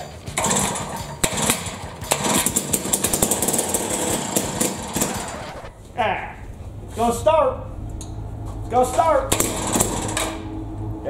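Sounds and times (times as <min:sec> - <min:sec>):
two-stroke engine running roughly: 0:00.0 - 0:05.6.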